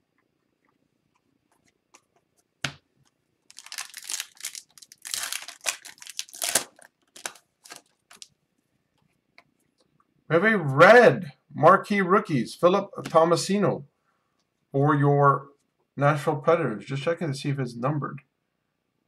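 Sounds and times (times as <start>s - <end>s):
plastic wrapper tearing and crinkling: 3.5s - 8.3s.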